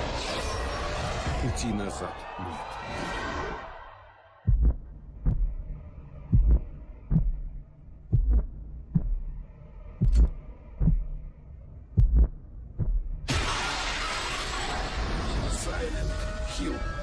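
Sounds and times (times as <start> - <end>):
deep heartbeat-like thuds: 4.5 - 13.3
faint low drone: 4.5 - 14.0.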